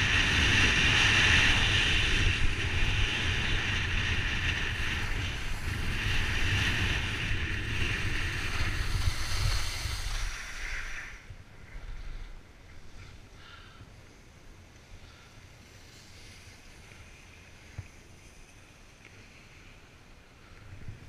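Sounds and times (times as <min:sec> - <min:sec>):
wind buffeting microphone: 0:00.0 - 0:13.2
skis hissing over snow: 0:00.0 - 0:21.0.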